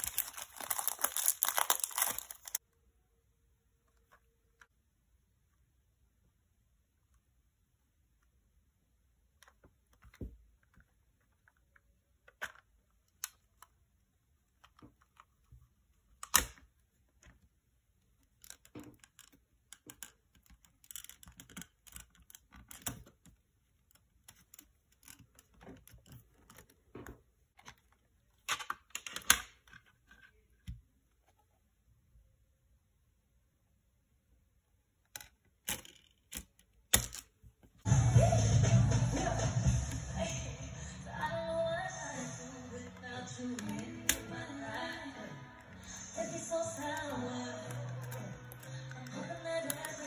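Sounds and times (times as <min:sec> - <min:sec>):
plastic cd case clicking: 0:46.8 - 0:50.0.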